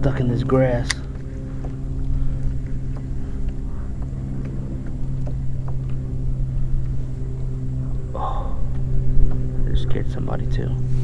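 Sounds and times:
motor drone: 0.0s - 11.0s
faint ticks: 0.9s - 7.0s.

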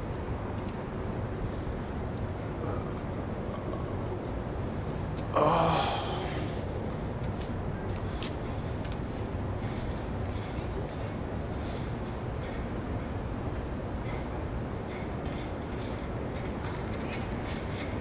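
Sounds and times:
crickets trilling: 0.0s - 18.0s.

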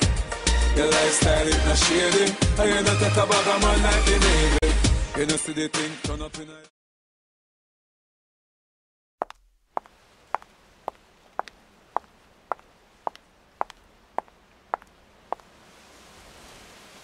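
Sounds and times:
high heels clicking on paving: 9.2s - 15.5s.

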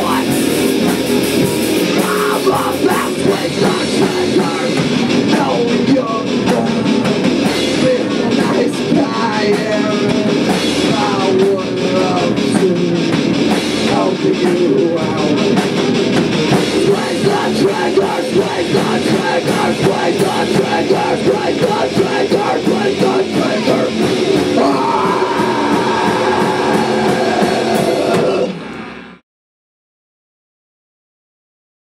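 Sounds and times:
person shouting singing: 0.0s - 0.4s, 1.9s - 13.1s, 16.8s - 28.6s
loud rock band playing: 0.0s - 29.2s.

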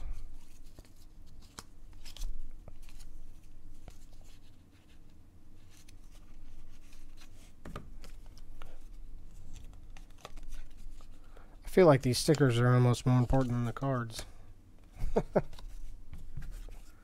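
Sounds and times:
cards flipping swishes and clicks: 0.1s - 11.2s, 15.4s - 17.0s.

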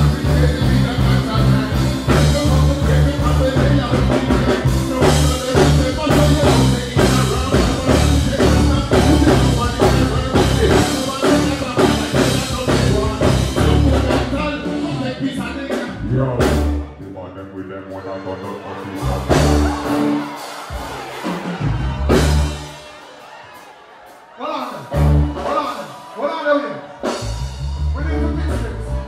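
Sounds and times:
drum beat: 0.0s - 16.8s, 18.9s - 26.2s
deep bass notes: 0.0s - 17.8s, 18.8s - 20.3s, 21.6s - 22.7s, 27.2s - 29.0s
live band playing dancehall: 0.0s - 29.0s.

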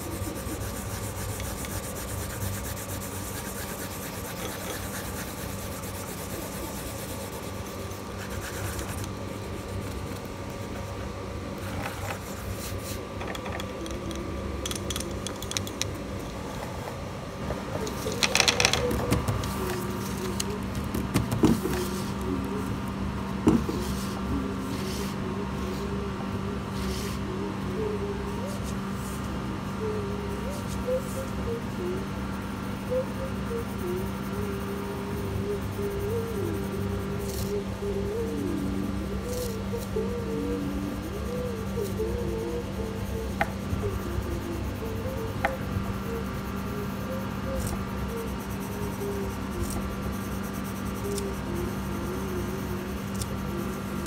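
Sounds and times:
pencil scratching on paper: 0.0s - 11.0s, 17.9s - 20.7s, 21.5s - 22.2s, 47.0s - 54.0s
faint steady hum: 0.0s - 54.0s.

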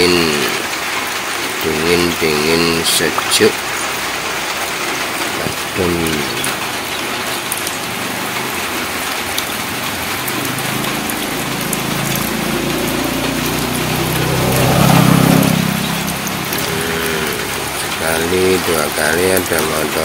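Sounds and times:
drizzle pattering on wet ground: 0.0s - 20.0s
motorcycle engine passing: 3.6s - 18.2s.

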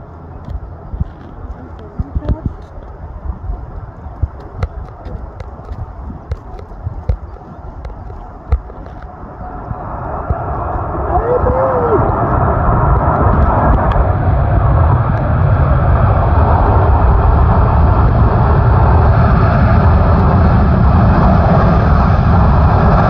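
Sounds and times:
jet engines roaring: 0.0s - 23.0s.

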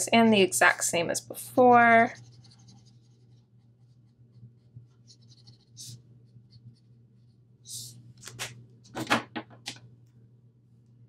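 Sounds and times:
marker scratching on paper: 1.7s - 8.6s.

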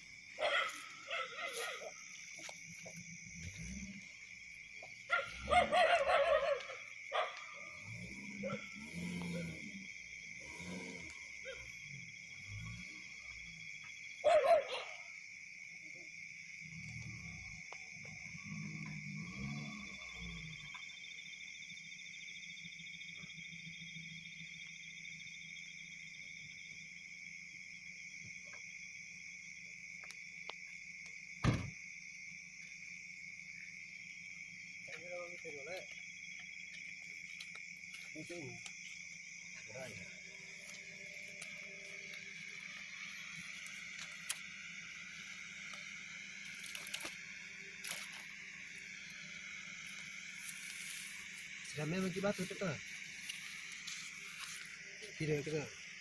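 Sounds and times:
night insects chirring: 0.0s - 56.0s
vehicle engine hum: 0.8s - 13.9s, 34.2s - 56.0s.

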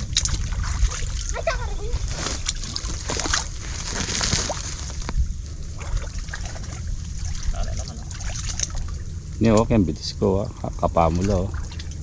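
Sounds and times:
hands sloshing in muddy water: 0.0s - 5.1s, 5.7s - 9.1s
steady low rumble: 0.0s - 12.0s.

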